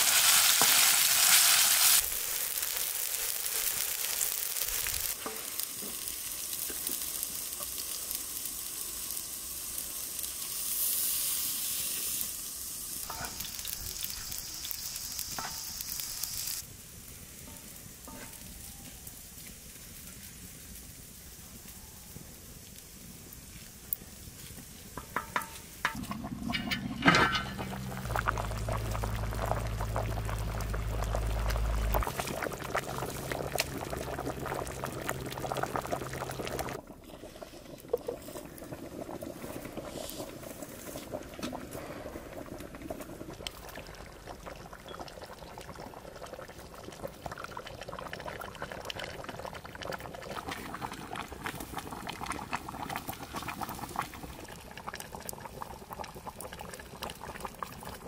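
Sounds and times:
wood fire crackling: 0.0 - 58.0
liquid bubbling in pots: 22.6 - 58.0
steady low rumble: 25.9 - 36.8.

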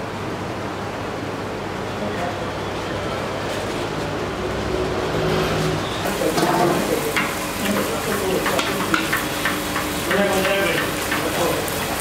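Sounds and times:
oil frying hiss: 6.0 - 12.0.

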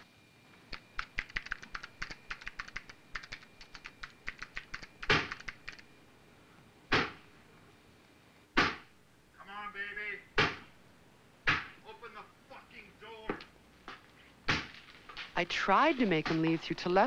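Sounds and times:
keyboard typing clicks: 0.7 - 5.8.

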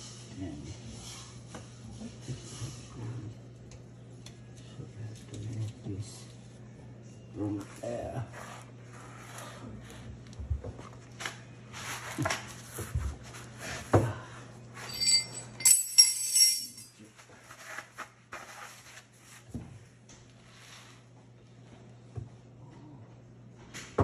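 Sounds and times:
low steady hum: 0.0 - 17.2
metallic clinking and jingling: 14.8 - 17.0.

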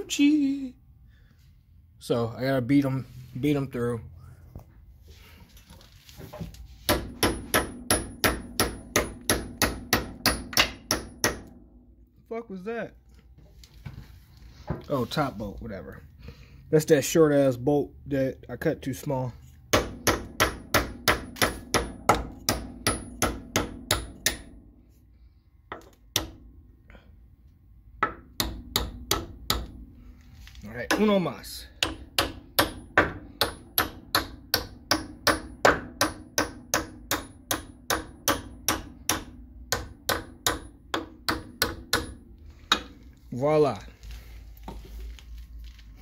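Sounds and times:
hammer striking metal: 6.9 - 11.8, 19.7 - 24.6, 25.7 - 26.5, 28.0 - 29.8, 30.9 - 43.0.

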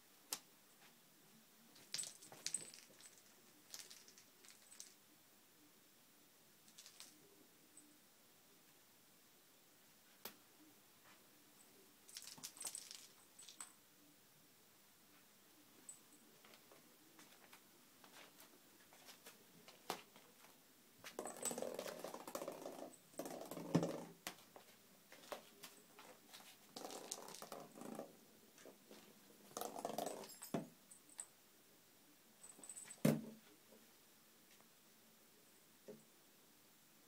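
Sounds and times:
plastic ball rolling on floor: 21.0 - 24.2, 26.6 - 28.2, 29.5 - 30.7.

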